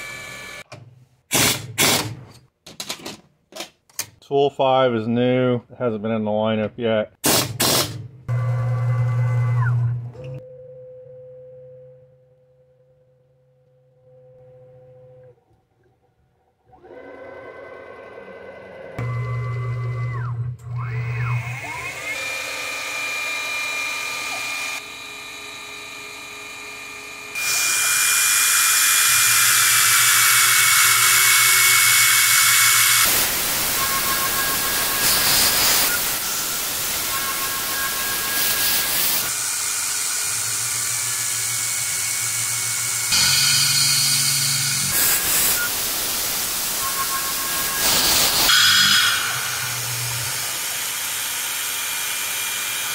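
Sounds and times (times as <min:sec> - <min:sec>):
milling machine spindle whine: 0:27.5 - 0:45.7.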